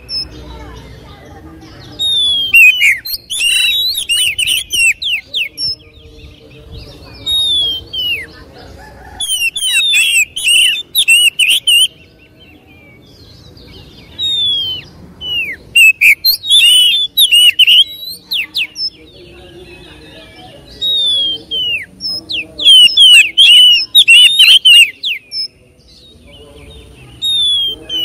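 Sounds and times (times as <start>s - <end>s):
bird singing whistled phrases: 2.0s - 5.8s, 7.2s - 8.3s, 9.2s - 12.0s, 14.0s - 19.1s, 20.7s - 26.1s, 27.2s - 28.0s.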